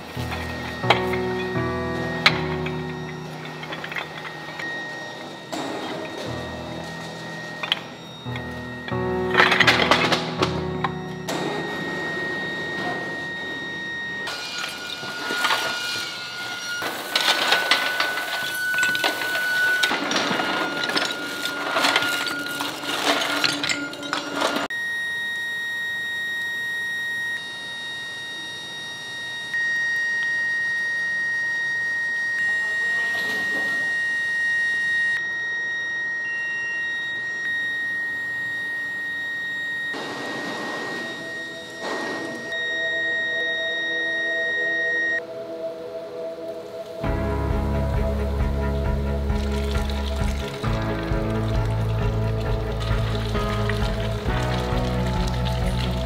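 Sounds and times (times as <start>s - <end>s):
crackling and scraping: 0.0s - 24.7s, 47.0s - 56.0s
furnace high-pitched whine: 0.0s - 56.0s.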